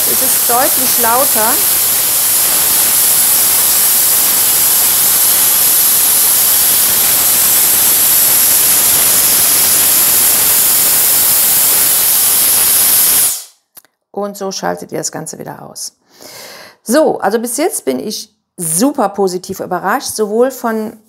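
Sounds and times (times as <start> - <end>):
high-pitched motor whine: 0.0 - 13.4
hair dryer blowing air: 0.0 - 13.6.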